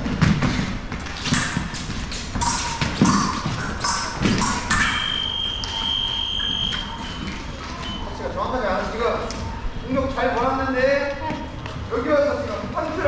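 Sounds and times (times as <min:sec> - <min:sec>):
feet thudding and tapping: 0:00.0 - 0:04.6
high electronic beep: 0:03.8 - 0:08.3.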